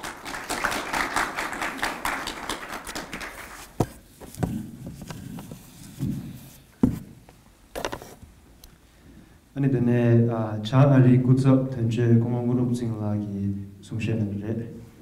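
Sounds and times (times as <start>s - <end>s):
wipe rubbing microphone: 3.6s - 6.7s.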